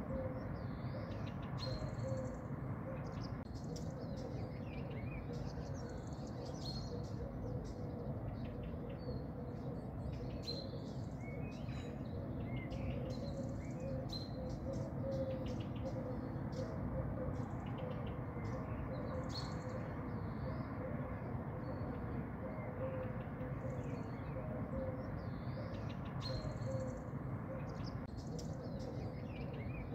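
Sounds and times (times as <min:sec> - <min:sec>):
low background noise: 0:00.0 - 0:29.9
small birds chirping: 0:25.0 - 0:29.9.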